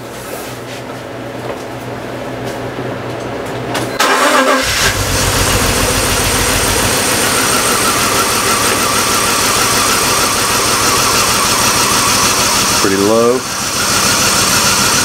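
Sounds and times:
engine cranking by starter: 0:04.0 - 0:15.0.

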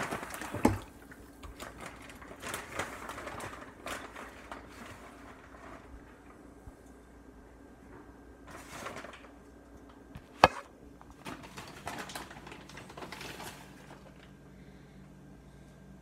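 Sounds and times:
plastic bag rustling: 0:00.0 - 0:06.6, 0:08.4 - 0:09.4, 0:10.2 - 0:14.4.

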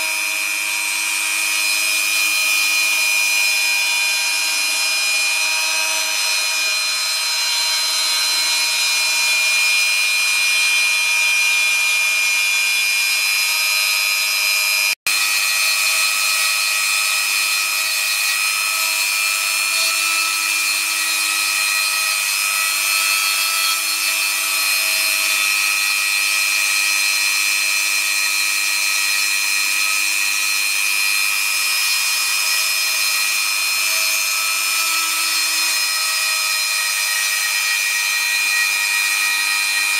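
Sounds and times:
router spindle whining: 0:00.0 - 0:39.9.

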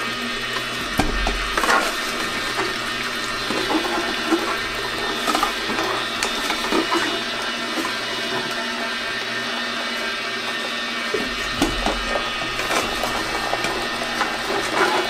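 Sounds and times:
juicer humming: 0:00.0 - 0:15.0
liquid pouring into cup: 0:00.1 - 0:09.3, 0:11.1 - 0:15.0.

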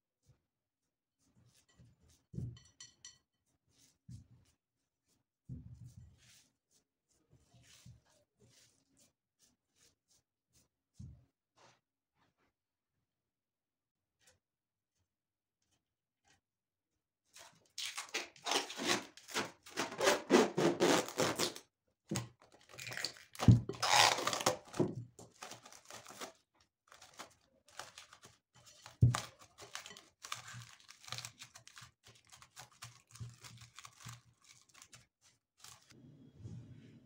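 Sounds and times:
packaging crinkling and tearing: 0:17.8 - 0:20.2, 0:22.5 - 0:35.9.

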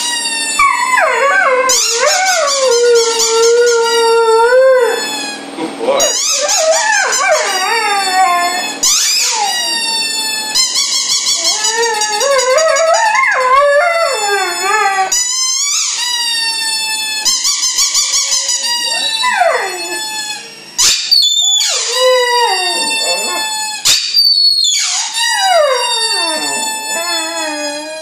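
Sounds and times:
dog howling: 0:00.6 - 0:05.2, 0:06.0 - 0:10.6, 0:11.3 - 0:15.3, 0:18.7 - 0:23.6, 0:25.1 - 0:28.0.

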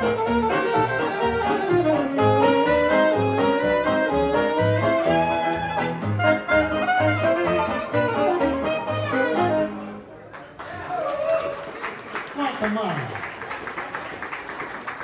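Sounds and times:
jazz band playing: 0:00.0 - 0:10.2.

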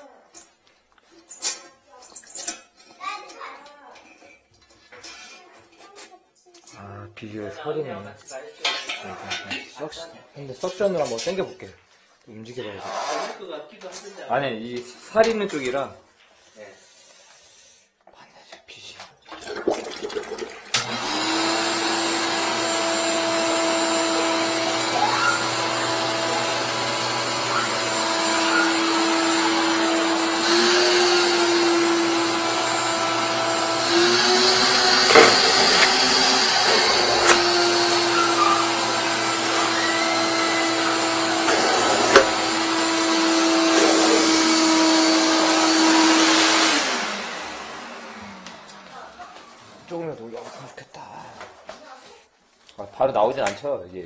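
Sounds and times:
shop vacuum sucking: 0:20.7 - 0:48.9.

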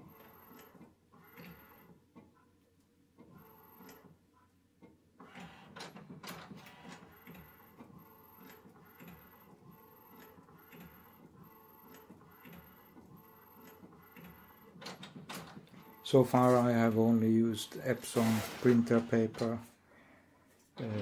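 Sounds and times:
inkjet printer print head shuttling: 0:05.2 - 0:09.4, 0:13.7 - 0:19.7.

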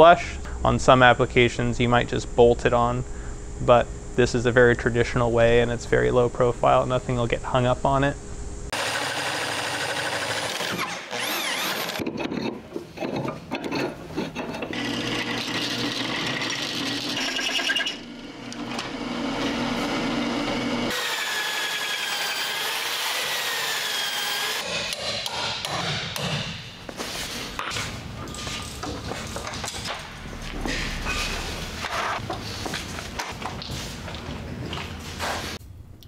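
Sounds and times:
power drill drilling metal: 0:08.8 - 0:12.0, 0:14.7 - 0:24.6
metallic squeal from cutter: 0:17.2 - 0:18.0, 0:30.9 - 0:32.2.

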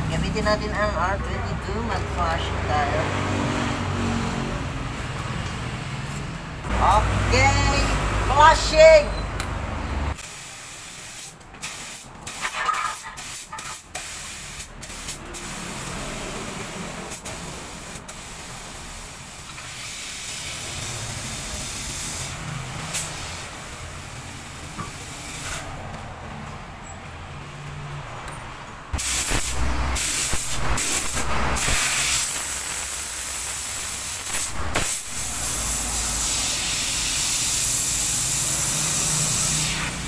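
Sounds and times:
gas hissing through tubing: 0:29.0 - 0:40.0.

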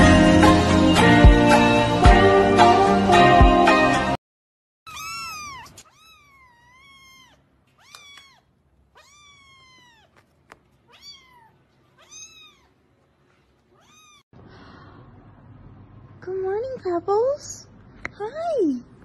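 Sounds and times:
kitten meowing: 0:04.9 - 0:10.2, 0:10.9 - 0:12.8, 0:13.8 - 0:14.2.

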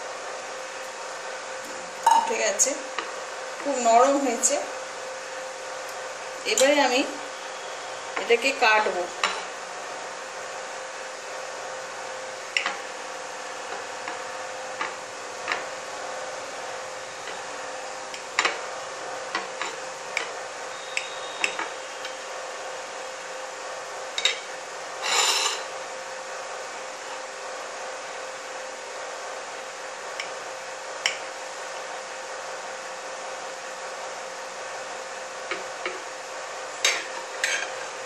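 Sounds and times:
knife scraping plate: 0:25.0 - 0:25.7, 0:36.9 - 0:37.8.

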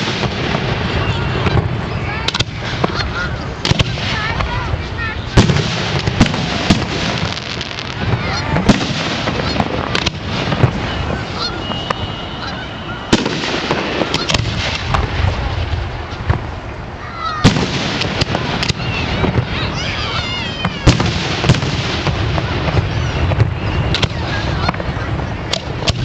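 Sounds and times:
crowd rumble: 0:00.0 - 0:26.0
fireworks launching and bursting: 0:00.0 - 0:26.0
high steady whistle: 0:10.8 - 0:13.2, 0:23.1 - 0:24.1
wavering high whistles or calls: 0:10.8 - 0:13.2.

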